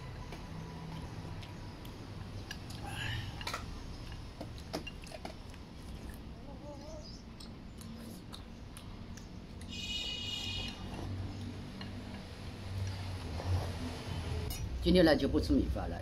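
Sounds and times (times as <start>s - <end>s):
chewing: 0.5s - 3.4s, 7.3s - 9.7s.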